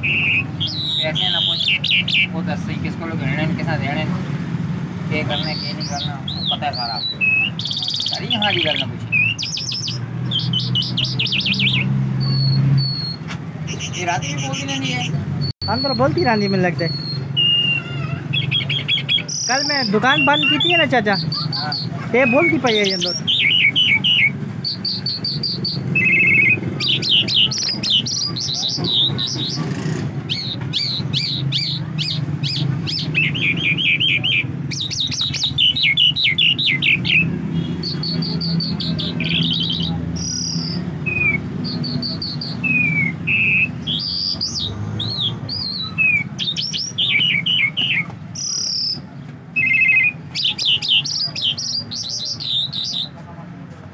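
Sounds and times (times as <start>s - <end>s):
songbird chirping trills: 5.0s - 53.1s.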